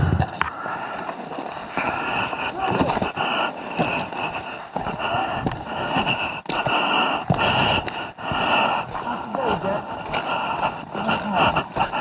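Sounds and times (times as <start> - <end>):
wind noise on microphone: 0.0 - 0.4.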